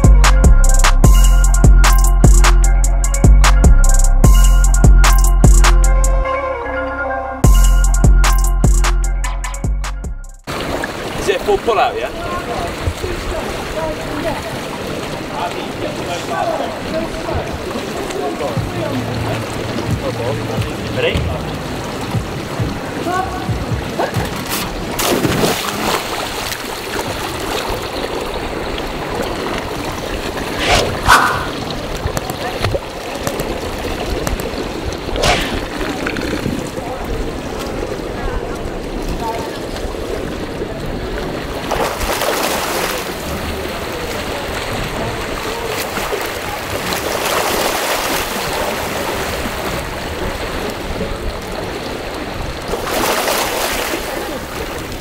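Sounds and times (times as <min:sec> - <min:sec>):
pool water churning and lapping: 0:10.4 - 0:55.0
water splash: 0:10.5 - 0:23.1, 0:23.9 - 0:36.8, 0:41.5 - 0:45.0, 0:45.6 - 0:51.7, 0:52.3 - 0:55.0
swimmer splashing in pool: 0:24.0 - 0:33.2, 0:35.0 - 0:36.1.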